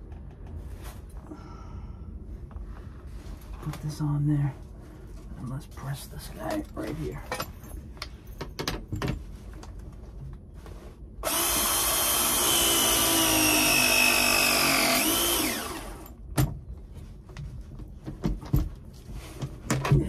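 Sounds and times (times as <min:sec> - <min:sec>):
press tool motor whine: 0:11.2 - 0:16.1.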